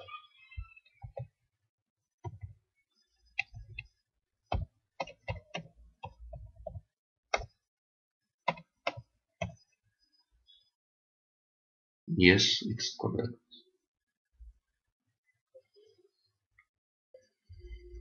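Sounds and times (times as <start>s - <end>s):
keyboard typing: 4.5s - 7.6s, 8.4s - 9.6s.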